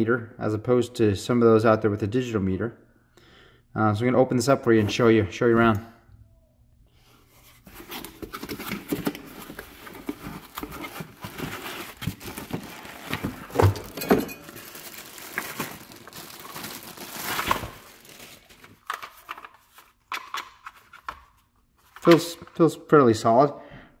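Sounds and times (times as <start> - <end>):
cardboard and foam rustling: 7.4 - 19.9
plastic bag crinkling: 8.1 - 19.4.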